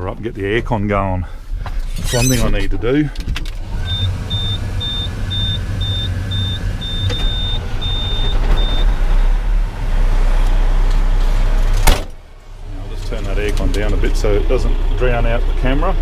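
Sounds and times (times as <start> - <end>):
dashboard warning beeps: 3.8 - 9.4
truck diesel engine idling: 3.8 - 16.0.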